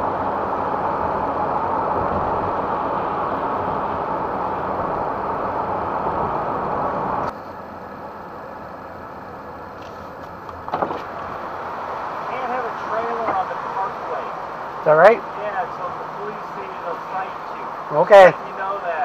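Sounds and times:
road and engine noise: 0.0s - 19.0s.

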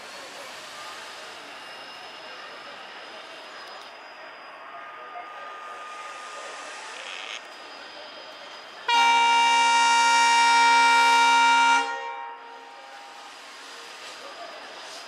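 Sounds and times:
train horn blast: 8.9s - 12.8s.

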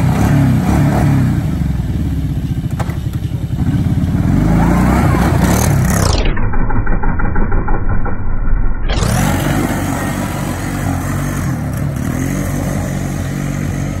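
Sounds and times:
atv engine revving: 0.0s - 8.2s, 8.9s - 14.0s.

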